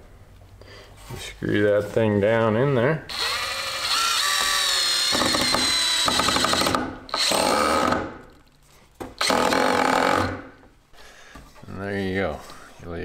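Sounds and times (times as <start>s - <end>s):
cordless drill driving screw into wood: 3.1s - 8.2s, 9.2s - 10.5s.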